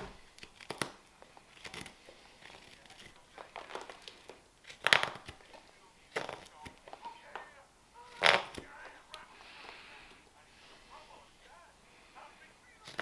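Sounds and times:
knife scraping wood: 0:00.0 - 0:05.5.

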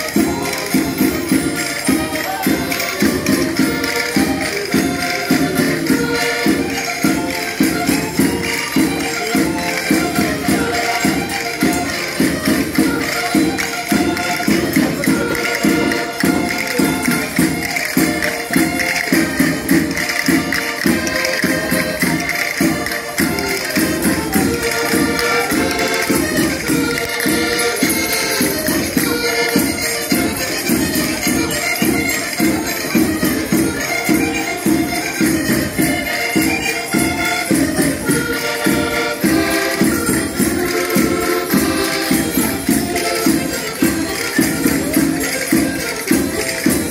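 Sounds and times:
accordion folk tune: 0:00.0 - 0:46.9
tambourine-like percussion: 0:00.0 - 0:46.9.

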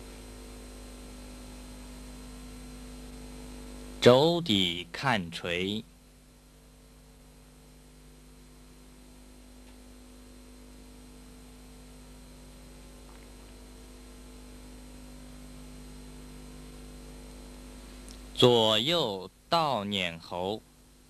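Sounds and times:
electrical hum: 0:00.0 - 0:21.0
even hiss: 0:04.0 - 0:05.9.

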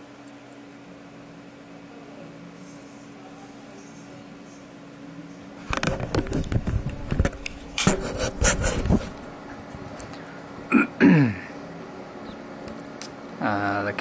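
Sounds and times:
faint steady hum: 0:00.0 - 0:14.0
knocks and scrapes: 0:05.7 - 0:09.2.

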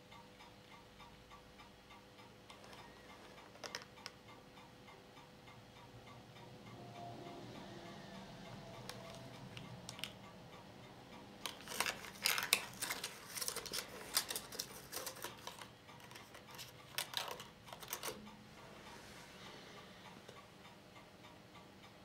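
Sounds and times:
steady low hum: 0:00.0 - 0:22.0
projector clicks and rattles: 0:11.4 - 0:18.3.

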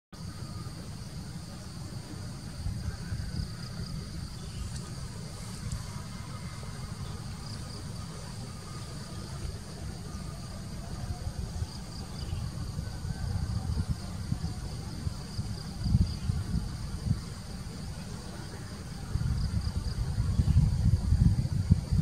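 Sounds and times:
insects chirring: 0:00.2 - 0:22.0
low unsteady rumble: 0:00.2 - 0:22.0.

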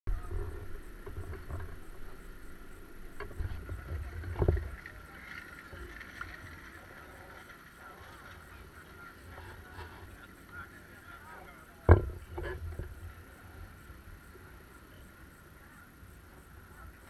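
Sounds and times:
wind rumbling on microphone: 0:00.1 - 0:10.7, 0:11.7 - 0:17.0
faint high hum: 0:00.1 - 0:17.0
thump: 0:11.9 - 0:12.9.

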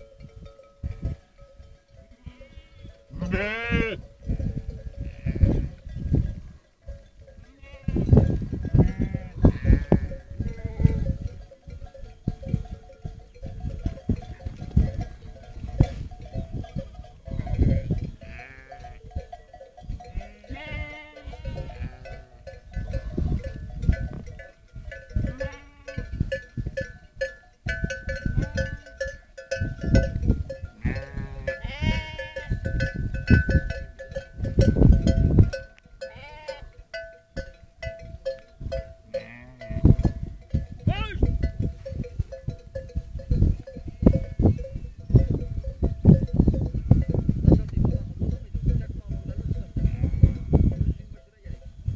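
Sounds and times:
sheep bleating: 0:02.2 - 0:04.0, 0:05.1 - 0:05.8, 0:07.5 - 0:08.1, 0:08.8 - 0:11.0, 0:18.2 - 0:19.0, 0:20.1 - 0:22.2, 0:30.8 - 0:32.6, 0:36.1 - 0:36.8.

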